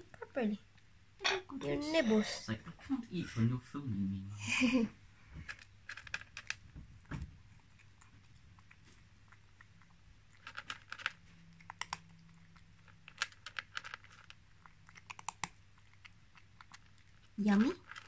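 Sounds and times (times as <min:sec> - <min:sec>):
cat crunching dry kibble: 0:05.2 - 0:18.0.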